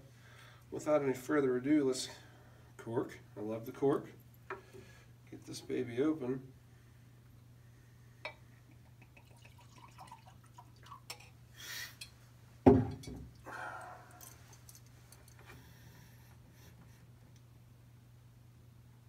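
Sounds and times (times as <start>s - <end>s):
liquid poured into a glass: 8.8s - 11.4s
bottle knocking on wood: 12.7s - 13.3s.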